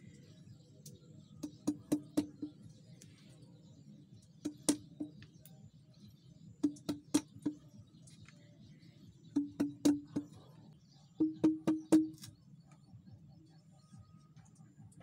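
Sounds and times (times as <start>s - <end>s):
machete knocking on bamboo: 1.4s - 2.5s, 4.5s - 5.2s, 9.4s - 10.3s, 11.2s - 12.3s.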